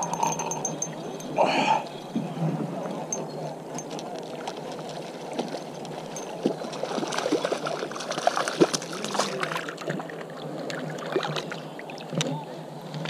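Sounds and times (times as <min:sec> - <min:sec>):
water lapping and splashing: 0:00.6 - 0:13.0
fish thrashing at water surface: 0:04.1 - 0:10.2.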